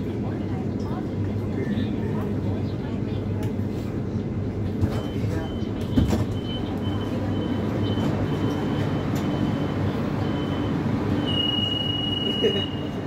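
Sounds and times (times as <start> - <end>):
loud steady high beep: 5.0 - 13.0.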